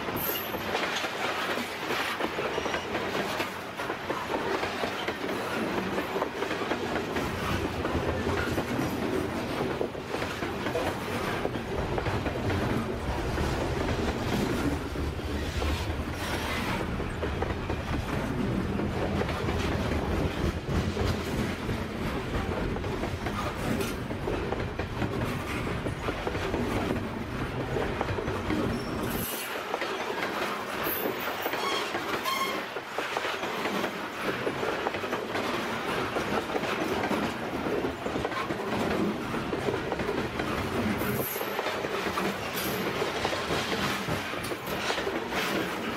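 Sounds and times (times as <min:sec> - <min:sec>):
freight train wheels on rails: 0:00.0 - 0:45.9
deep train rumble: 0:05.4 - 0:29.2.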